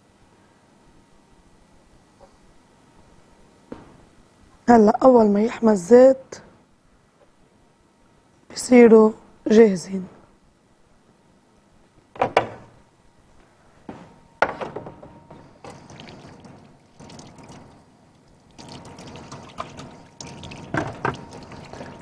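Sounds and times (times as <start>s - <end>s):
kitchenware knocks: 12.2s - 12.7s, 14.4s - 15.2s
tap running water into sink: 18.6s - 22.0s.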